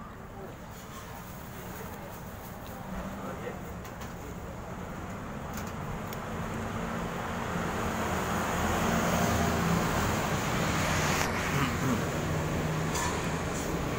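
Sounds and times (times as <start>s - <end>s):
vehicle passing: 6.2s - 13.9s.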